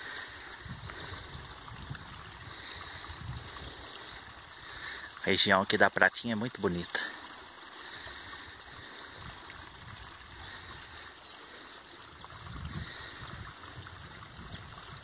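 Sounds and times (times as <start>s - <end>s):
wind rumble on microphone: 0.0s - 4.7s, 8.7s - 11.0s, 12.0s - 15.0s
stream water rushing: 0.0s - 15.0s.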